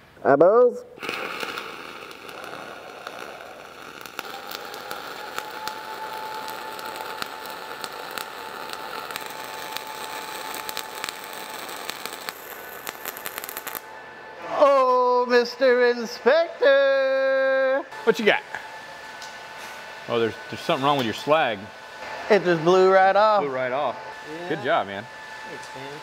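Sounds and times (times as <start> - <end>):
welding arc crackling: 1.0 - 13.9.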